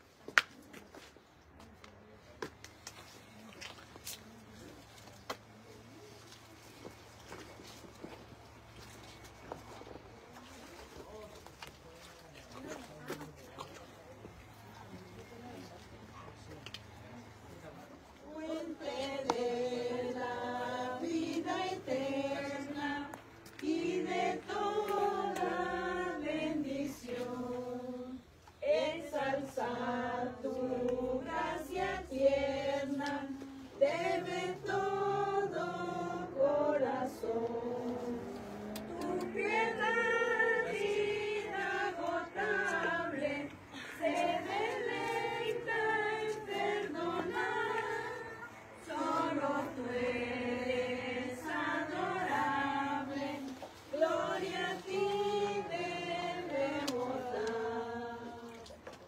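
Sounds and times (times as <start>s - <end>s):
congregation singing a hymn: 18.3s - 58.9s.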